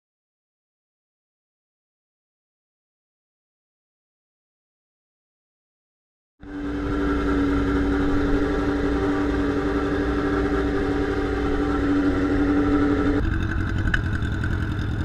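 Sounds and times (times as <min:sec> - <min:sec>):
motorcycle engine idling: 0:06.4 - 0:15.0.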